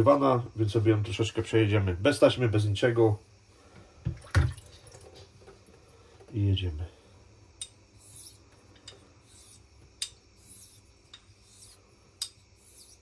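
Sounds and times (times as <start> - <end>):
razor swishing across stone: 8.0 - 8.5, 9.2 - 13.0.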